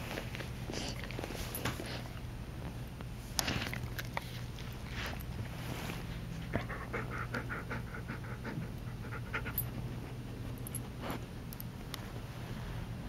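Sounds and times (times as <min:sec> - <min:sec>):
puppy panting: 0:06.3 - 0:11.2.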